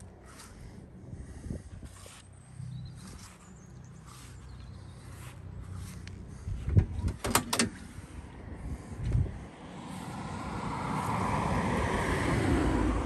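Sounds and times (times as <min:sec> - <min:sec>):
footsteps on grass: 0:00.0 - 0:00.8, 0:01.8 - 0:06.7
metallic clunks of car door: 0:06.7 - 0:07.8
car door latch click: 0:07.0 - 0:07.8.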